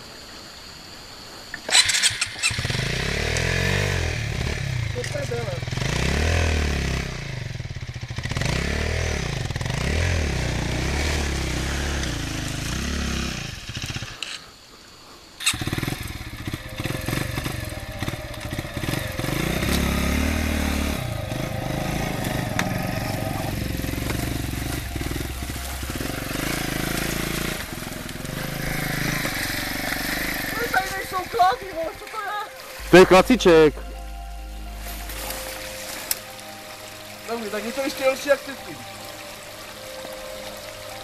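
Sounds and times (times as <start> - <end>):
motorcycle engine revving: 1.6 - 14.5, 15.4 - 38.9
water splashing under wheel: 15.4 - 33.7.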